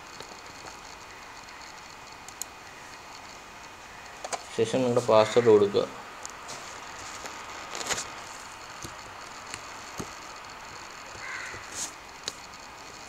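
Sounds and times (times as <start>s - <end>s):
faint steady hiss: 0.0s - 13.0s.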